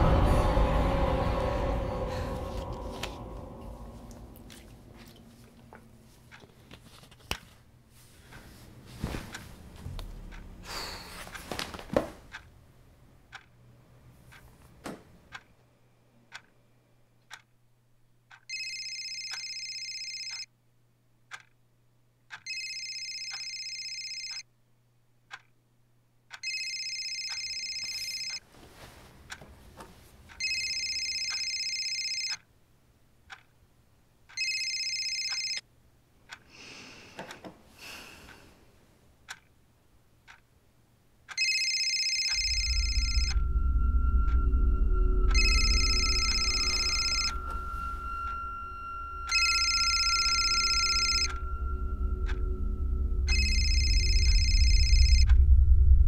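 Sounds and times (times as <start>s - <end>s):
clock ticking: 9.3s - 13.6s, 15.3s - 15.5s, 16.3s - 16.5s, 17.3s - 17.5s, 18.3s - 20.5s, 21.3s - 21.6s, 22.3s - 24.4s, 25.3s - 25.5s, 26.3s - 28.4s, 30.3s - 32.4s, 33.3s - 33.6s, 34.2s - 35.6s, 39.2s - 39.6s, 40.2s - 40.5s, 41.2s - 52.7s, 53.3s - 55.4s
phone ringtone: 18.5s - 20.5s, 22.4s - 24.4s, 26.4s - 28.4s, 30.4s - 32.4s, 34.4s - 35.6s, 41.4s - 44.6s, 45.2s - 55.4s.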